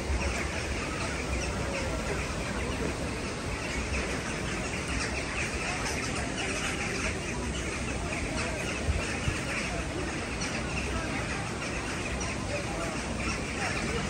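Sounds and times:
flock of birds chirping: 0.0 - 14.0.

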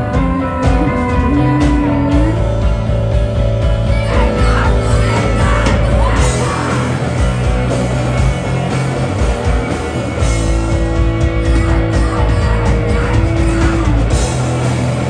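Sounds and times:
woman singing: 0.0 - 2.7, 3.8 - 7.0, 11.4 - 14.0
live rock band: 0.0 - 15.0.

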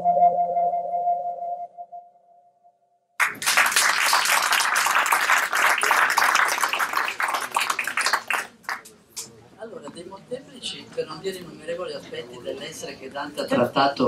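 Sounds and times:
audience applause: 3.2 - 8.9.

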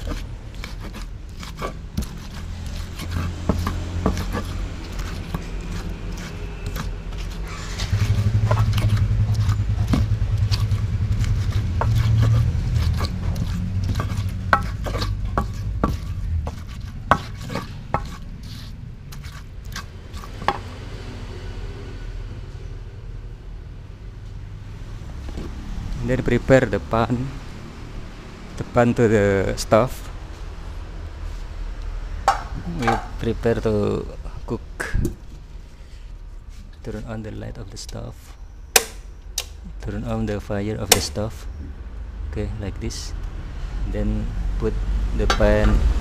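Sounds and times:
pestle knocking and scraping: 0.0 - 20.8, 32.2 - 33.5, 38.7 - 39.5, 40.3 - 41.7, 45.2 - 46.0.

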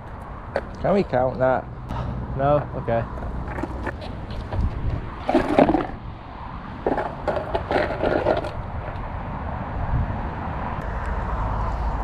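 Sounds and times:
skateboard knocking on concrete: 3.2 - 6.0, 6.8 - 9.0
wind on microphone: 4.3 - 7.4, 8.4 - 12.0.

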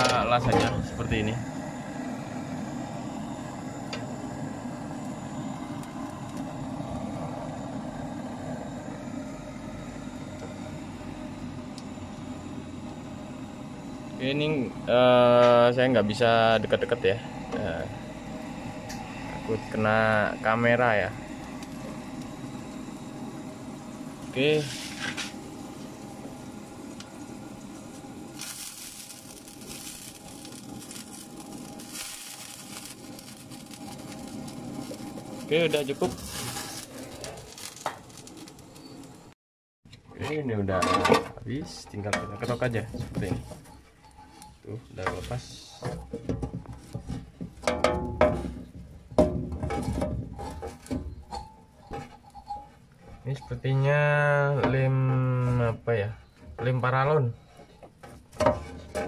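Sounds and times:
gas torch roaring: 0.0 - 39.4, 42.0 - 43.7.

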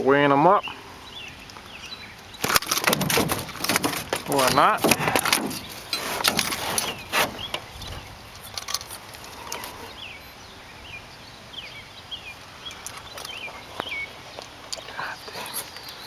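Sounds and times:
birds chirping: 0.0 - 16.0
faint outdoor background: 0.0 - 16.0
sharp knocks: 2.8 - 7.7.

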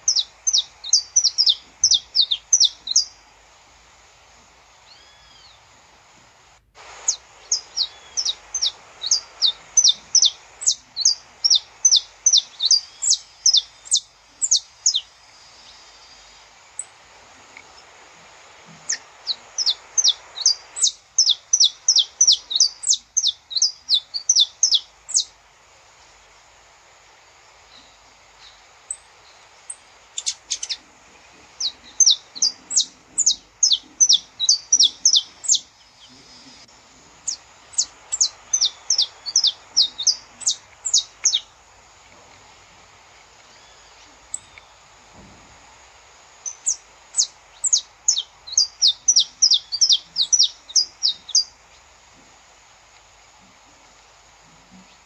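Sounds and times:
finch singing high chip notes: 37.3 - 41.5.

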